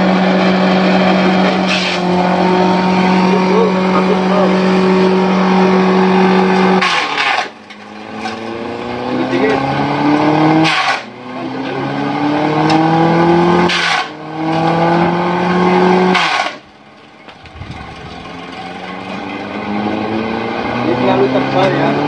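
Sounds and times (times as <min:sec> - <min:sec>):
machine chopping stalks: 0:00.0 - 0:04.5, 0:06.0 - 0:11.5, 0:12.6 - 0:17.4
electric motor whining: 0:00.0 - 0:16.7.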